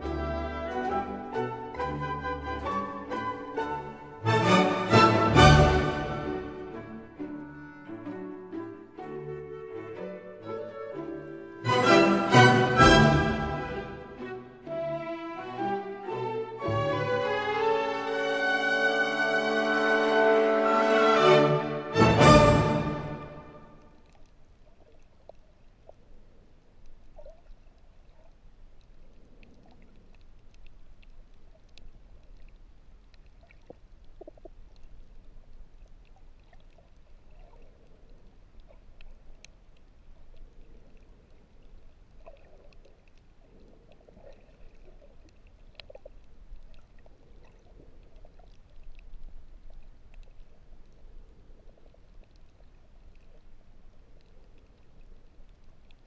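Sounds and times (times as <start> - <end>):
water sloshing and gurgling: 19.9 - 56.0
faint clicks: 23.8 - 56.0.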